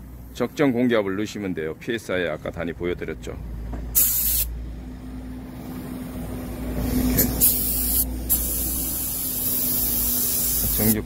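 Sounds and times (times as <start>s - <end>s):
compressed air hissing: 3.9s - 4.5s, 6.9s - 11.0s.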